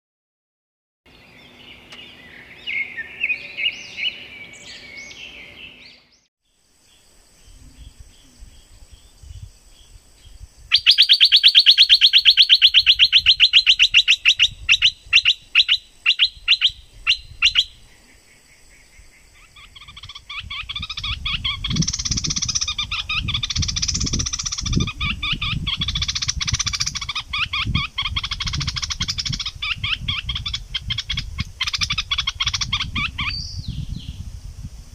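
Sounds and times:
songbird trilling and chirping: 1.1s - 34.3s.

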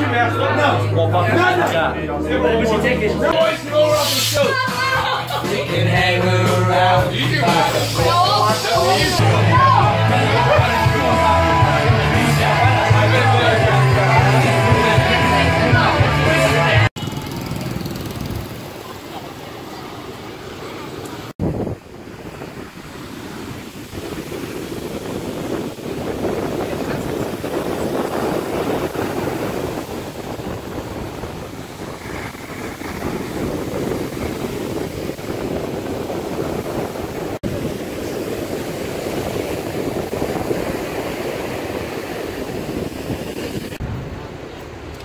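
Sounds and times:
surf washing up a beach: 3.4s - 11.6s, 18.4s - 45.0s.

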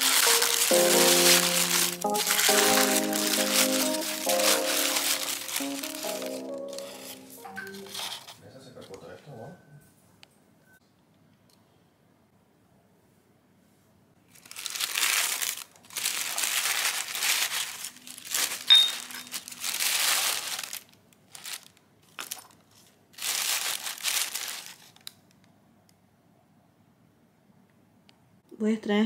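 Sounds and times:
tissue paper rustling: 0.0s - 8.4s, 14.3s - 25.1s
ceramic cup clink: 18.7s - 19.3s.

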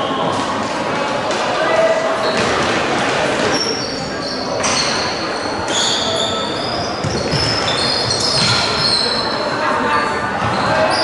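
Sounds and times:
shoes squeaking on floor: 2.2s - 2.6s, 3.4s - 11.0s.

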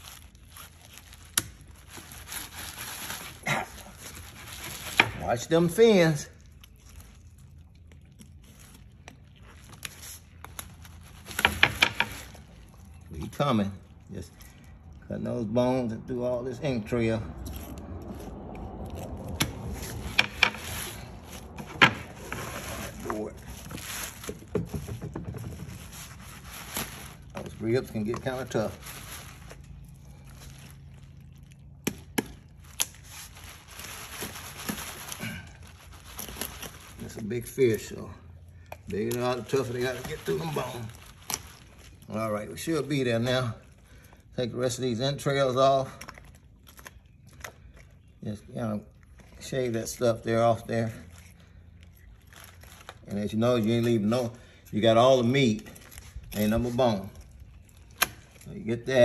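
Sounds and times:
fish bones crunching: 51.1s - 53.8s, 55.7s - 58.6s.

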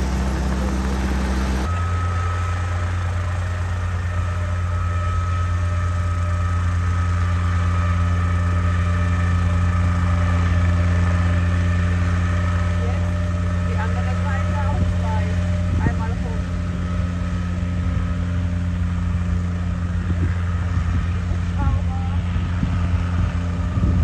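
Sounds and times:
engine running with low hum and whine: 0.0s - 24.0s.

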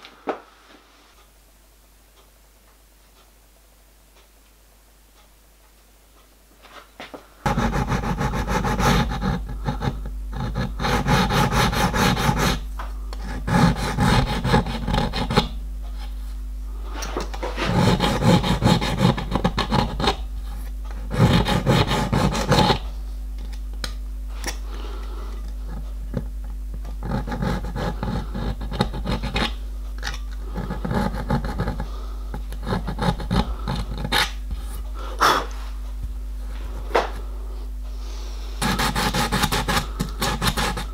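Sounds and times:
low hum: 7.3s - 40.9s
file rasping on steel: 7.5s - 12.6s, 13.2s - 15.6s, 17.5s - 20.2s, 21.0s - 22.8s, 27.0s - 29.6s, 30.5s - 31.9s, 32.5s - 34.4s, 38.6s - 40.9s.

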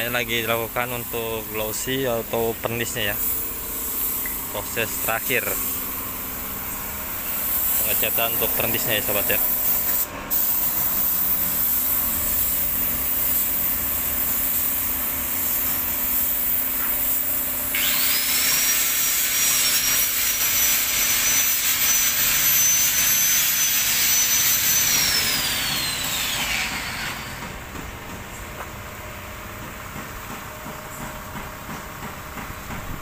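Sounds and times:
spray gun air hissing: 0.9s - 27.0s.

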